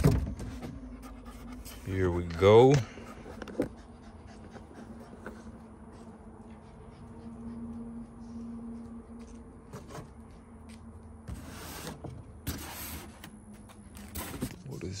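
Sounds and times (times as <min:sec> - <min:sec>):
styrofoam and cardboard scraping: 0:11.3 - 0:13.3, 0:14.0 - 0:14.7.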